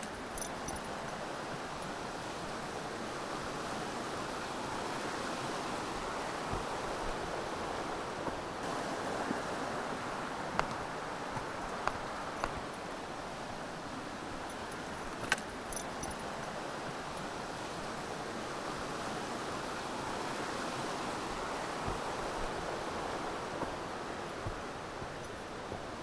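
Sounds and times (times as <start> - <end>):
light metallic jingles: 0.0 - 2.5, 14.3 - 17.8, 23.4 - 26.0
brook water rushing: 0.0 - 26.0.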